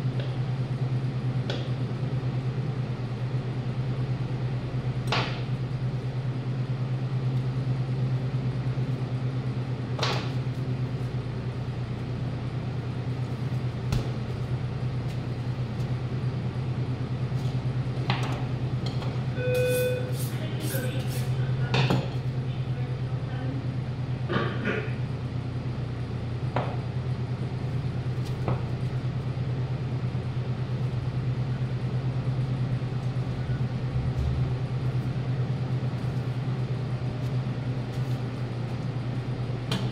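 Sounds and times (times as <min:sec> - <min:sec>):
low machine hum: 0:00.0 - 0:39.9
brief tone: 0:19.3 - 0:20.8.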